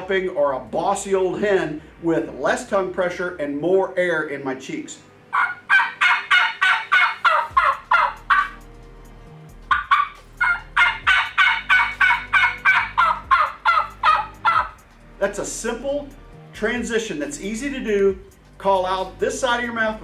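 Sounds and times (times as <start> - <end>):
turkey call yelps: 5.3 - 8.6, 9.7 - 14.8.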